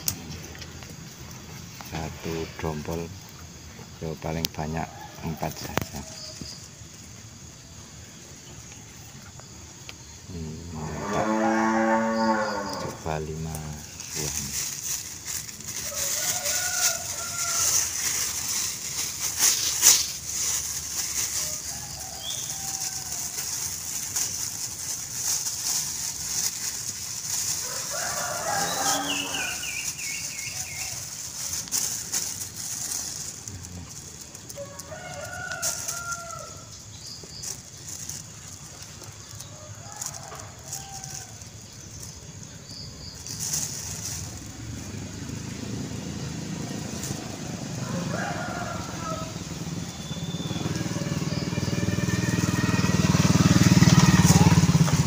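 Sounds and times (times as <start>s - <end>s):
plastic bag crinkling: 11.0s - 45.8s
chickens calling: 11.2s - 41.3s, 46.8s - 55.0s.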